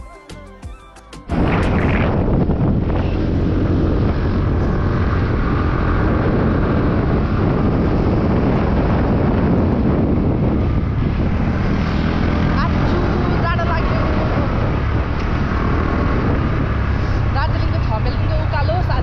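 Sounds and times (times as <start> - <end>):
road noise: 1.3 - 19.0
wind rushing on microphone: 1.3 - 19.0
scooter engine: 2.7 - 19.0.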